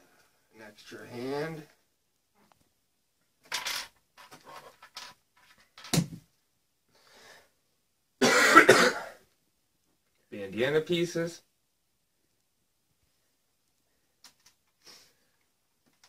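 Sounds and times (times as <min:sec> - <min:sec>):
man coughing: 0:08.2 - 0:09.2.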